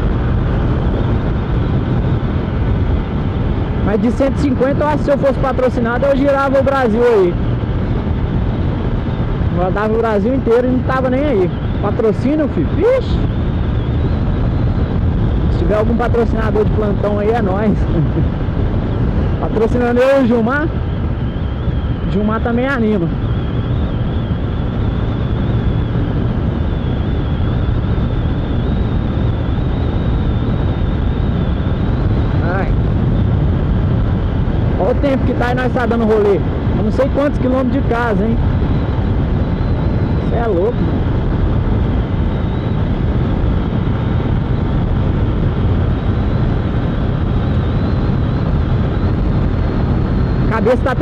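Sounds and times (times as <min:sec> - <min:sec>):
faint high whine: 0:00.0 - 0:51.0
motorcycle engine cruising: 0:00.0 - 0:51.0
wind rush over microphone: 0:00.0 - 0:51.0.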